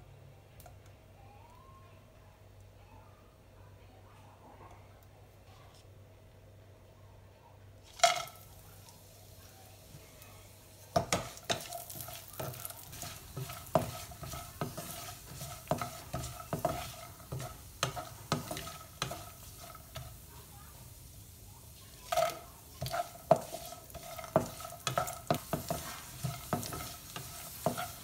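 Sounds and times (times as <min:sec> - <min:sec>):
light sizzle: 0:07.6 - 0:28.0
spatula knocking and scraping pan: 0:10.9 - 0:20.3, 0:22.0 - 0:28.0.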